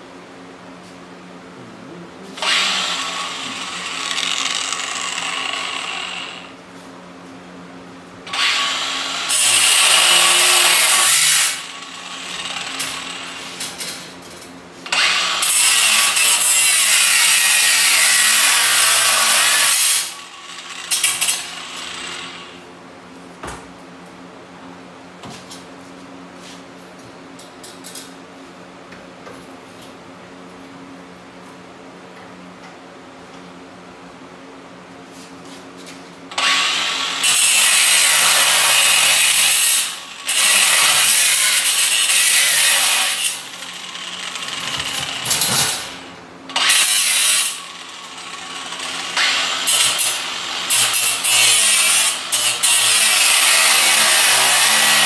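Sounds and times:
steady low hum: 0.0 - 8.4
handheld power tool on metal: 2.4 - 6.5, 8.3 - 13.9, 14.9 - 22.6, 36.3 - 55.0.

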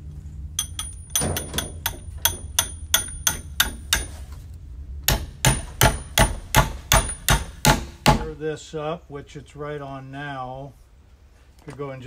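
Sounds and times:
hammer striking steel bolt: 0.6 - 4.2, 5.1 - 8.3.

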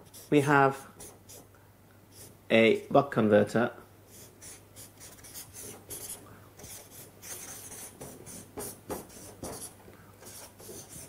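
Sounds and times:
marker pen scratching: 0.0 - 1.5, 4.1 - 11.0.

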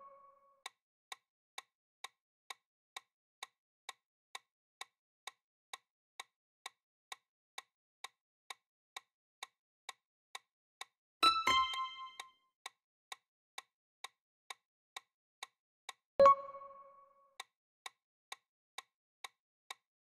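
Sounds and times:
countdown timer ticking: 11.2 - 12.3, 16.2 - 17.1.

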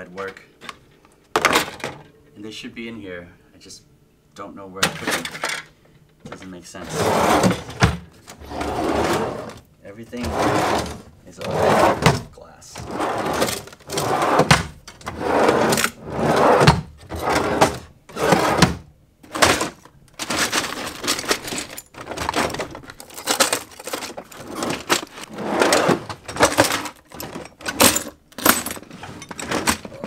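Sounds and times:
drawers sliding open and shut: 1.4 - 2.1, 4.8 - 30.0
glass pieces clinking and rattling: 20.2 - 25.2.

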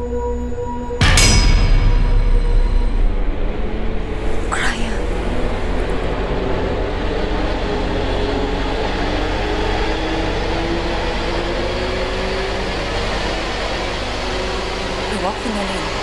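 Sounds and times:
low drone: 0.0 - 16.0.

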